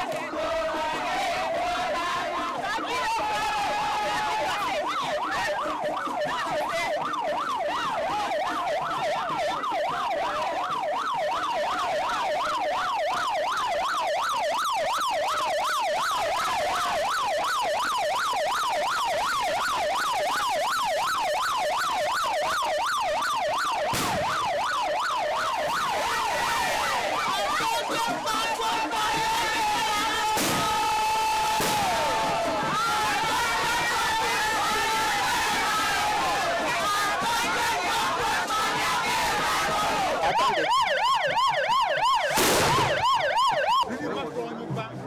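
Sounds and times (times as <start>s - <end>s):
vehicle siren yelping: 0.0s - 43.9s.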